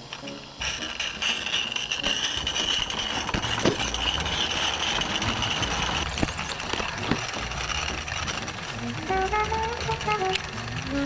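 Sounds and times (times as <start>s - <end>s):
model locomotive hissing steam: 0.0s - 11.0s.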